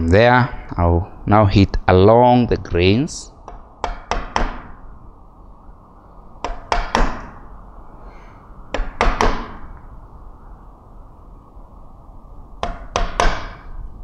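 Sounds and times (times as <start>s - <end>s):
mallet knocking on chisel: 3.5s - 4.7s, 6.4s - 7.4s, 8.7s - 9.7s, 12.6s - 13.7s.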